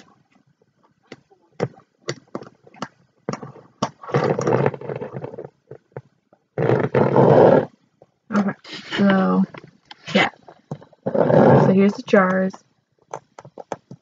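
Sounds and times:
rough grinding scrape: 11.0 - 11.9.

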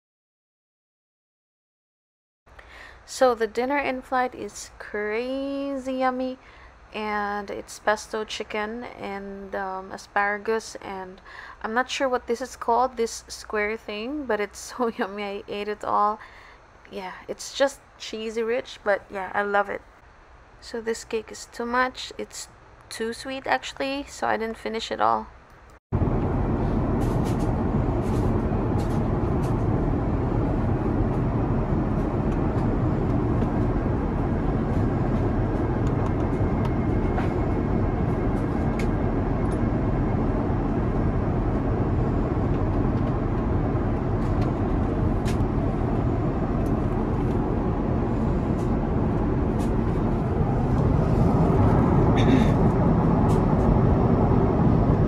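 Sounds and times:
airliner cabin drone: 26.0 - 55.0.

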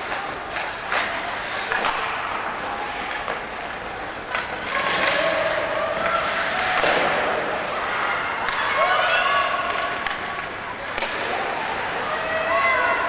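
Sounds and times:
hockey sticks and puck clacking: 0.0 - 13.0
skates scraping on ice: 0.0 - 13.0.

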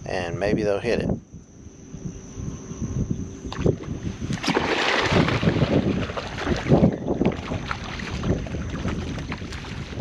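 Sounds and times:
wind buffeting microphone: 0.0 - 10.0
fish splashing in water: 4.4 - 10.0.

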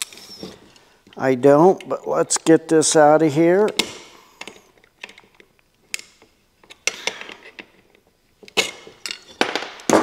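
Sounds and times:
metal tools clicking and clinking: 8.4 - 9.6.

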